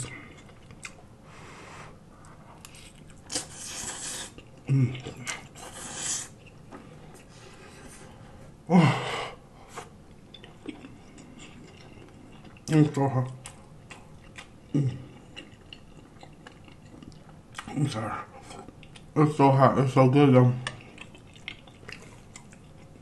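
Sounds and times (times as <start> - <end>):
slurping noodles: 3.4 - 4.4, 5.6 - 6.4
mouth clicks and chewing: 10.2 - 17.8, 18.4 - 19.2, 20.6 - 23.0.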